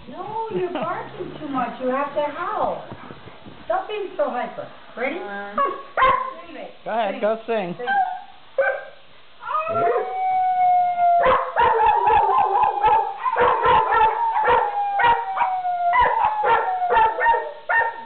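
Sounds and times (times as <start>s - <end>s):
dogs yipping and barking: 5.6s - 6.4s, 7.9s - 9.0s, 11.2s - 18.0s
dogs howling: 9.4s - 18.0s.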